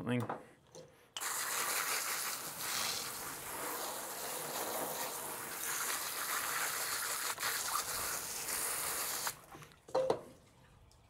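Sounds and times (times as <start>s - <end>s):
hose water jet splashing: 1.2s - 9.5s.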